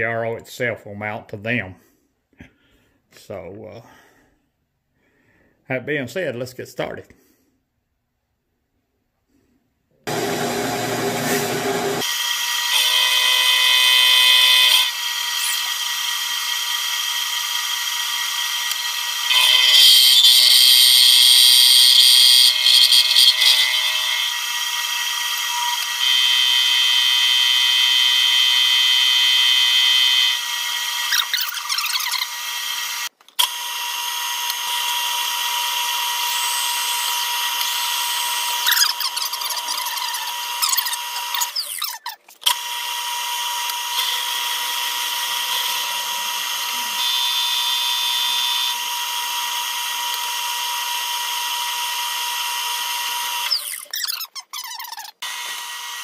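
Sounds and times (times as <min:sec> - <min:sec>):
end mill cutting metal: 0:10.1 - 0:28.5.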